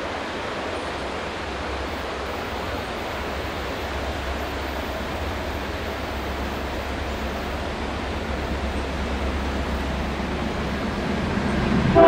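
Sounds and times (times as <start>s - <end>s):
constant rushing noise: 0.0s - 12.0s
diesel locomotive rumble: 0.8s - 12.0s.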